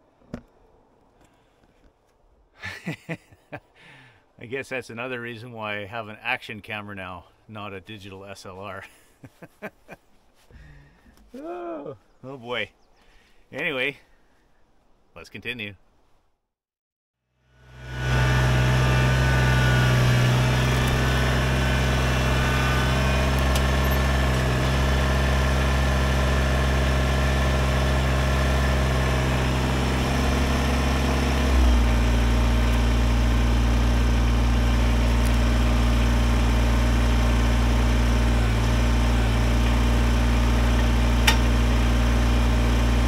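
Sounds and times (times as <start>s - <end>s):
tractor diesel engine running: 17.5s - 43.0s.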